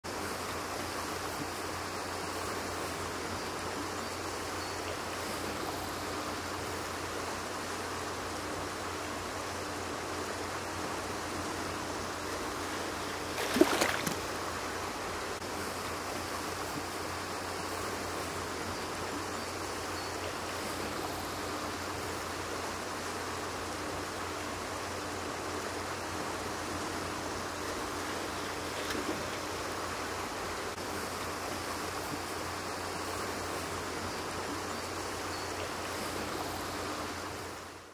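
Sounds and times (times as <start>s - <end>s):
creek water running: 0.1s - 37.9s
loud splash in water: 13.3s - 14.3s.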